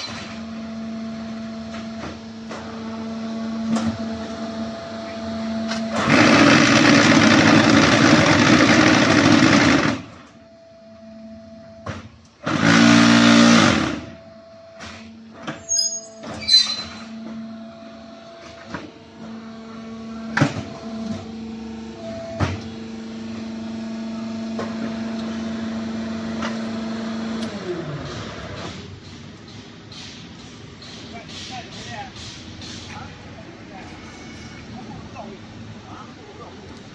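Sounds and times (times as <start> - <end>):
mould and hydraulics clanking: 26.3 - 35.0.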